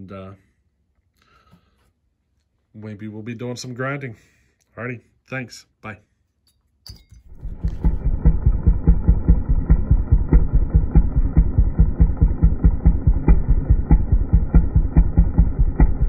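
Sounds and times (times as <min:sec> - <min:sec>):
chainsaw engine idling: 0:07.3 - 0:16.0.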